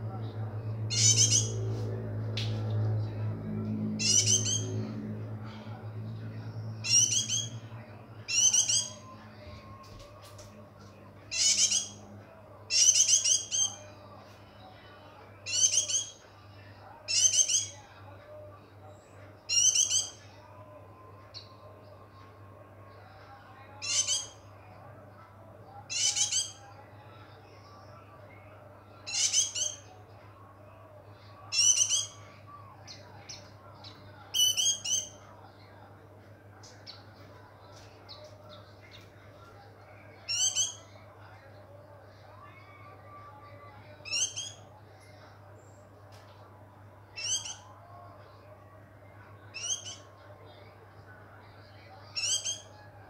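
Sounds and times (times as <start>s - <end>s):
bird chirping: 0.9s - 1.5s, 4.0s - 4.7s, 6.8s - 7.6s, 8.3s - 9.1s, 11.3s - 12.0s, 15.5s - 16.1s, 19.5s - 20.2s, 23.8s - 24.4s, 25.9s - 26.6s, 29.1s - 29.8s, 31.5s - 32.2s, 40.3s - 40.8s, 44.1s - 44.6s, 47.2s - 47.6s, 49.6s - 50.1s, 52.2s - 52.7s.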